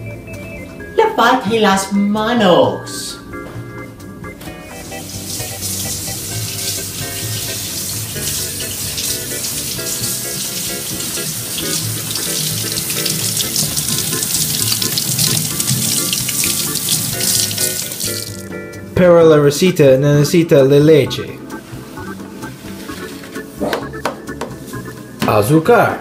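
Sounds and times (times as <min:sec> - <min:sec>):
faucet running into metal sink: 0:04.8 - 0:18.5
hands rubbed under water: 0:04.8 - 0:18.5, 0:21.5 - 0:23.6.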